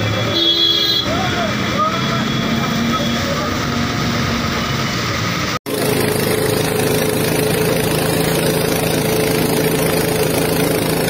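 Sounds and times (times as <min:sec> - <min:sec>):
tractor engine running: 0:03.5 - 0:11.0.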